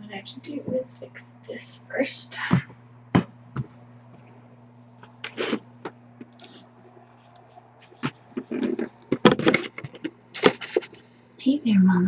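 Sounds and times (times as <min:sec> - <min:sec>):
low electrical hum: 0:00.0 - 0:12.0
camera handling scrapes and knocks: 0:07.9 - 0:11.0.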